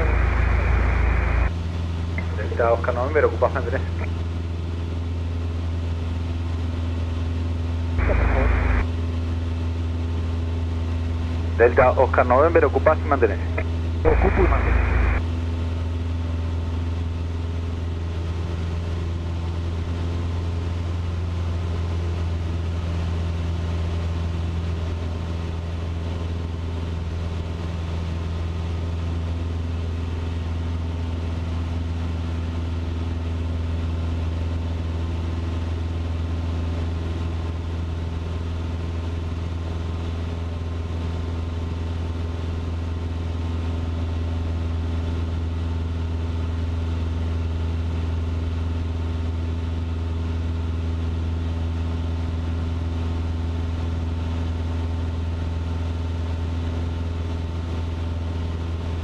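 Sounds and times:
airplane engine and propeller droning: 0:00.0 - 0:59.0.

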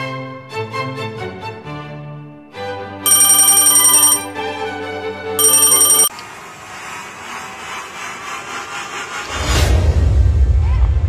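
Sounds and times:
electric bell ringing: 0:03.1 - 0:04.3, 0:05.4 - 0:06.1.

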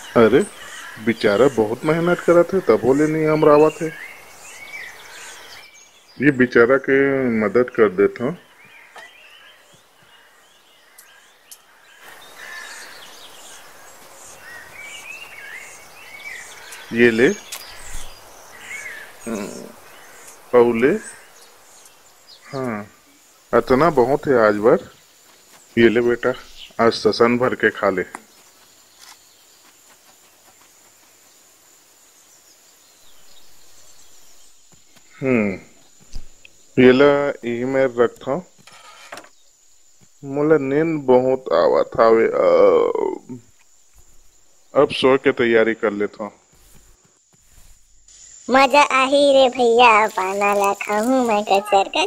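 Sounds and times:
soft background hiss: 0:00.0 - 0:29.6
high insect trill: 0:00.0 - 0:52.0
small birds chirping: 0:00.0 - 0:52.0.

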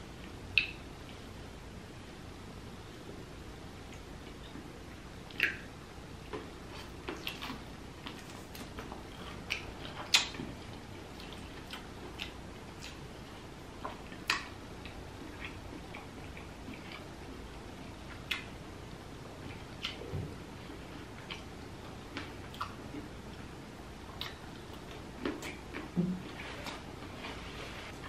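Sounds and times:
wet mouth clicks while chewing: 0:05.3 - 0:05.7, 0:09.3 - 0:10.4, 0:24.2 - 0:25.9.

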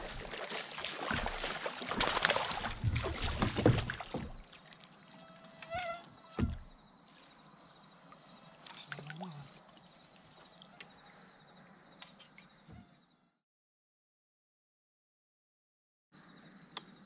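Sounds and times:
insect chirring: 0:04.3 - 0:13.2
low voice-like sounds: 0:08.8 - 0:09.6.

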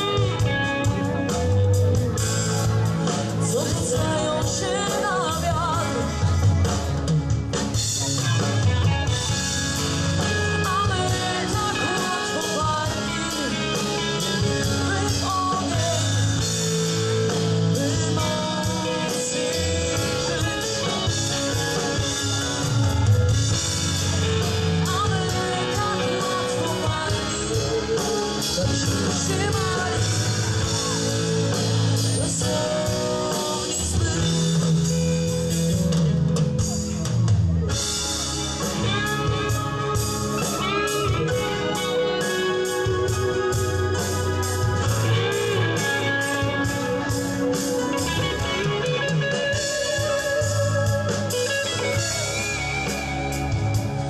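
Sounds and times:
rock band playing: 0:00.0 - 0:54.0
woman singing: 0:03.3 - 0:06.3, 0:10.4 - 0:16.7, 0:17.6 - 0:21.4, 0:24.7 - 0:31.4, 0:32.0 - 0:35.1.

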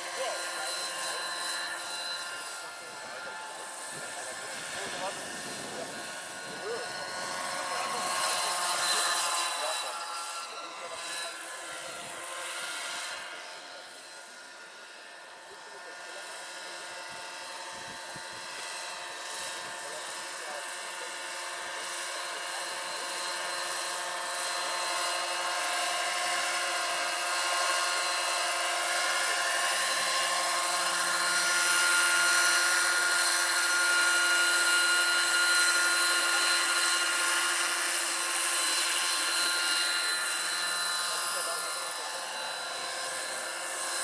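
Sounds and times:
model helicopter rotor whine: 0:00.0 - 0:44.0.

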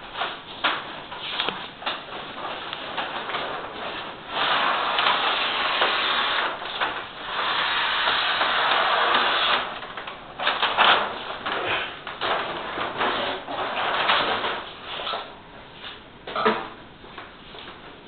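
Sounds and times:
sheet crackling rustles: 0:00.0 - 0:16.1
backing liner peeling rasp: 0:04.3 - 0:09.7.

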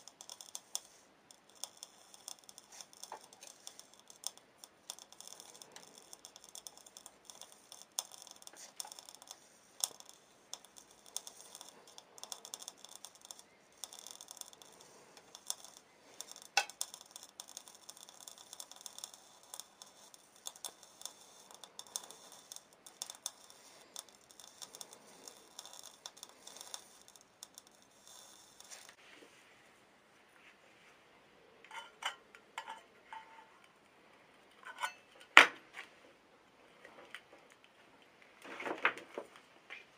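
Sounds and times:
metal crackling under laser: 0:00.0 - 0:29.0.

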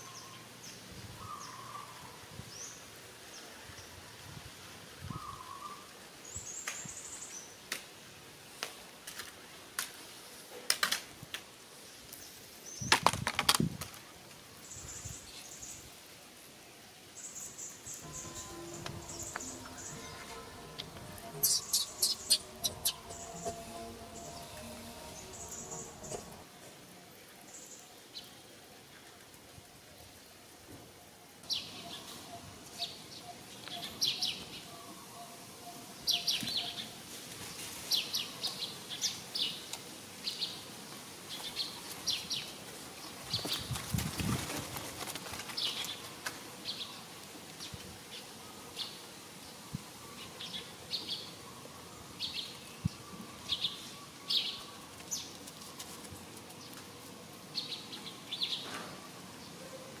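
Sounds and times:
small birds chirping: 0:17.2 - 0:26.4.

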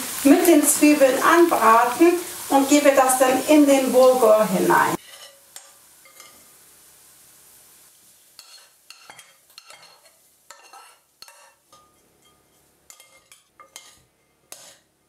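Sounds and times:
faint steady hiss: 0:00.0 - 0:15.0
spoons scraping glass bowl: 0:08.4 - 0:11.6, 0:12.2 - 0:14.8.

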